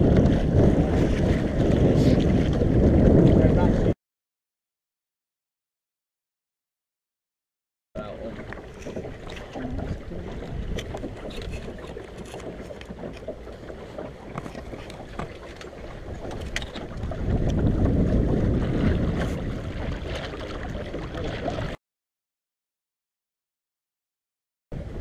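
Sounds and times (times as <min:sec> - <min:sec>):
water rushing along a hull: 0:00.0 - 0:04.0, 0:08.0 - 0:21.8, 0:24.8 - 0:25.0
wind buffeting microphone: 0:00.0 - 0:04.0, 0:08.0 - 0:21.8, 0:24.8 - 0:25.0.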